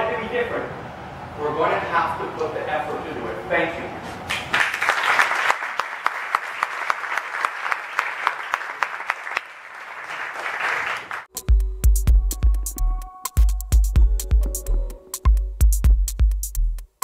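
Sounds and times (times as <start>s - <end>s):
audience applauding: 4.3s - 11.3s
electronic music with heavy bass: 11.4s - 17.0s.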